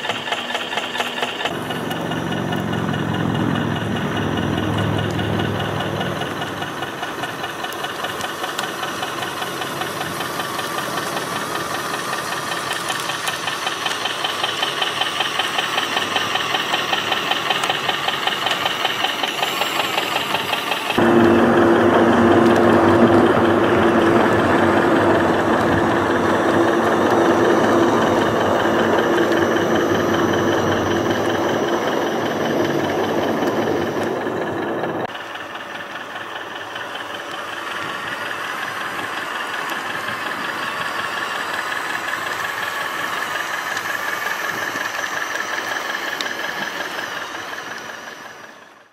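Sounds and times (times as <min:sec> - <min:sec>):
model diesel engine chugging: 0:00.0 - 0:48.9
steady hum: 0:01.5 - 0:13.1, 0:15.9 - 0:35.1.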